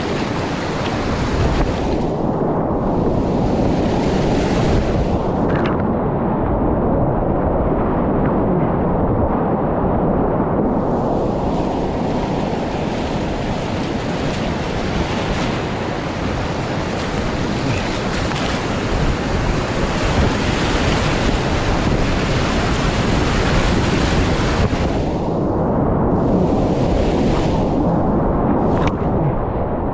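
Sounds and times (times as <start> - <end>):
whitewater rapids roaring: 11.8 - 24.9.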